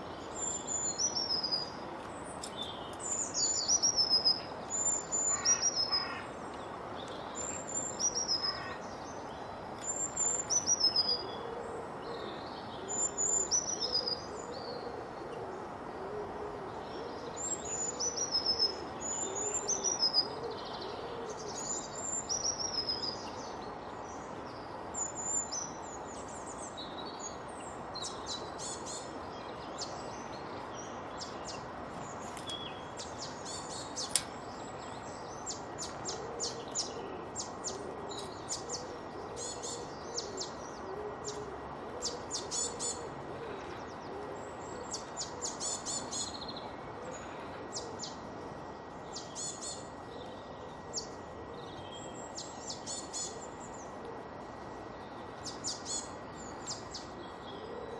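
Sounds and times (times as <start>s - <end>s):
low repeated bird calls: 0.0s - 57.9s
songbirds singing and chirping: 0.0s - 57.9s
steady background noise: 0.0s - 57.9s.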